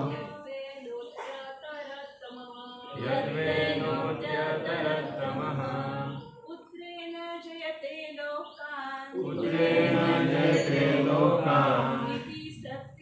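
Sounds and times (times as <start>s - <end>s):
group chanting in unison: 0.0s - 0.4s, 2.9s - 6.4s, 9.1s - 12.9s.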